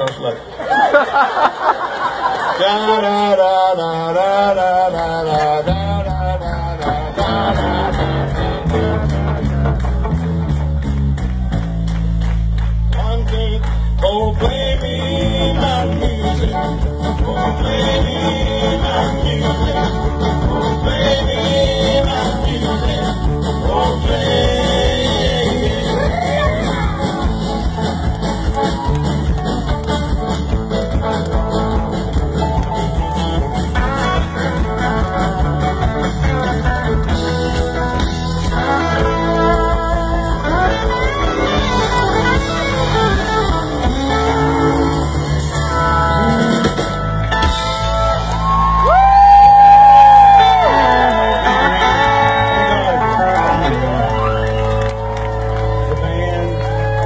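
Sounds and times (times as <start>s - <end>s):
country-rock band playing: 4.3s - 57.0s
person singing: 13.0s - 28.0s, 55.8s - 57.0s.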